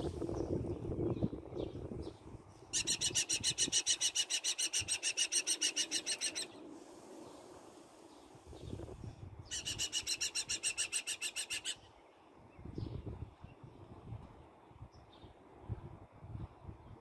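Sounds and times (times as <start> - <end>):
falcon chattering calls: 2.8 - 6.6, 9.5 - 11.8.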